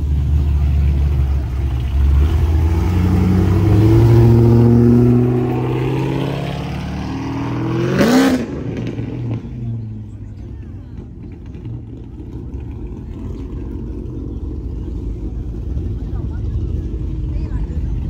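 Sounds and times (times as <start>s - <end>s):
car engine driving past: 0.0s - 18.0s
sharp engine rev: 2.0s - 9.6s.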